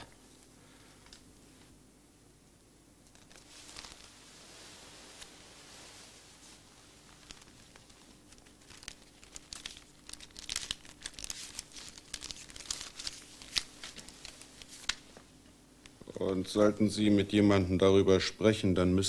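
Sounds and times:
banknotes crinkling: 0:03.1 - 0:15.3.

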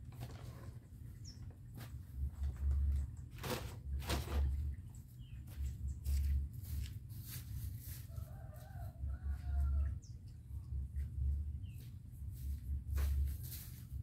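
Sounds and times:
steady low hum: 0:08.8 - 0:14.0.

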